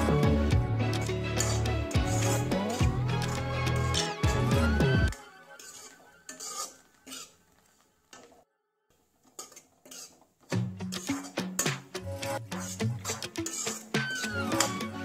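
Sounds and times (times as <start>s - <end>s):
background music: 0.0s - 7.5s, 10.5s - 15.0s
spoon scraping metal pan: 0.9s - 8.4s, 9.2s - 15.0s.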